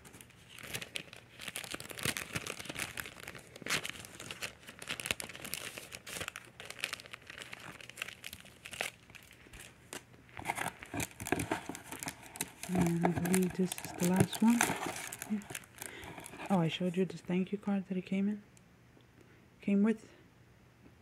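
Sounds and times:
plastic sheet crinkling: 0.0 - 16.8.

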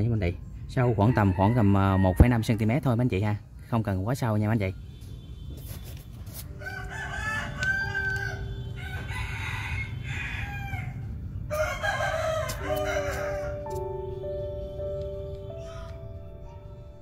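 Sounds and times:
rooster crowing: 0.8 - 2.9, 6.6 - 13.8
soft music with held notes: 6.2 - 9.6, 12.1 - 17.0.

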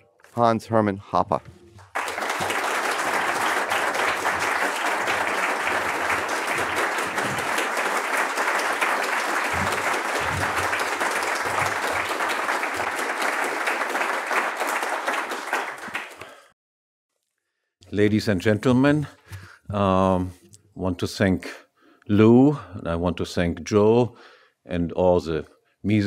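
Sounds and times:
audience applauding: 1.8 - 16.6.

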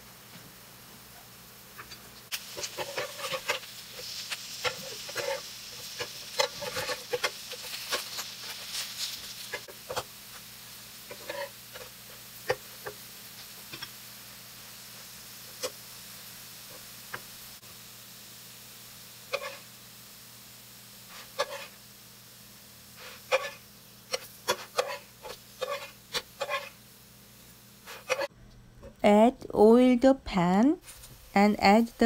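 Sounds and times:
pancakes sizzling in oil: 0.0 - 28.3
spatula scraping a pan: 1.8 - 10.4, 11.0 - 13.9, 19.3 - 19.7, 21.1 - 21.8, 23.0 - 26.8, 27.8 - 28.3.

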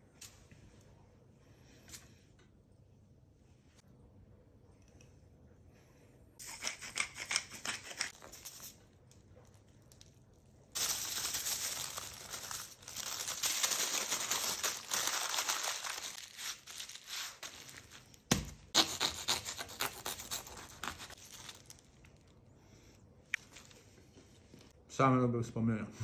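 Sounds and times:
paper and foil crinkling: 9.4 - 22.4.

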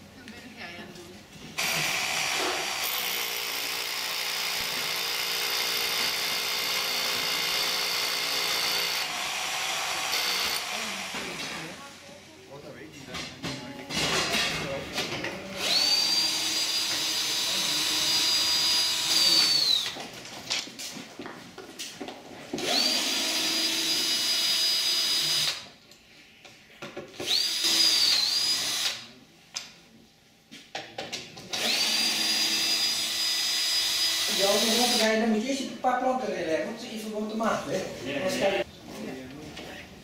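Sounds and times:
cordless drill whining: 1.6 - 11.7, 15.6 - 20.0, 22.6 - 25.7, 27.2 - 29.1, 31.5 - 35.1.

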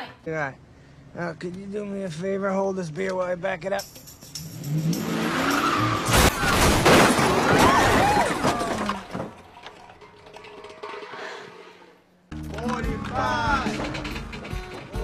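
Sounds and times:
car engine revving: 4.3 - 6.6
loud crash: 5.0 - 9.5.

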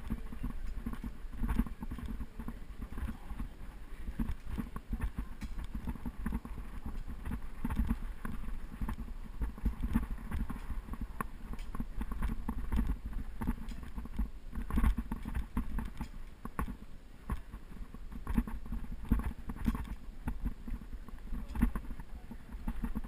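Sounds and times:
bicycle rattles and knocks: 0.0 - 23.0
wind buffeting microphone: 0.0 - 23.0.

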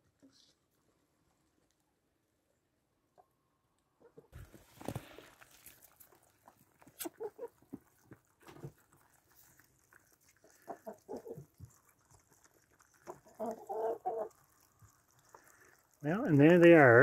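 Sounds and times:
chickens pecking at bowl: 4.0 - 17.0
chickens clucking: 6.5 - 8.8, 10.4 - 11.8, 12.4 - 14.5.

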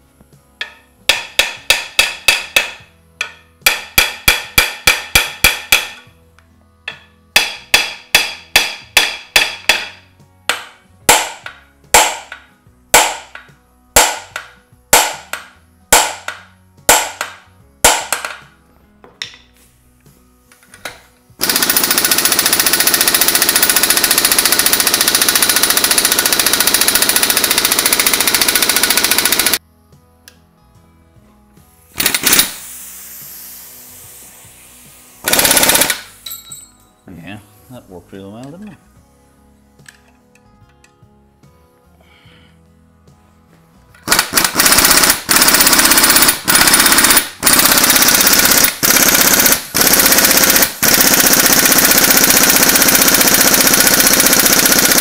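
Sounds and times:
air impact wrench hammering: 0.6 - 6.1, 6.9 - 18.5, 20.5 - 29.6, 31.8 - 36.7, 44.0 - 55.0.

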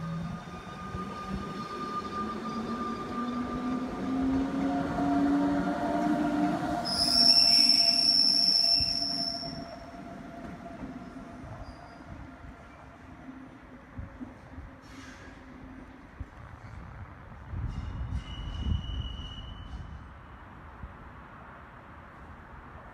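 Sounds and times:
train wheel squeal: 0.1 - 4.1, 6.8 - 12.8, 14.8 - 15.6, 16.6 - 20.2.

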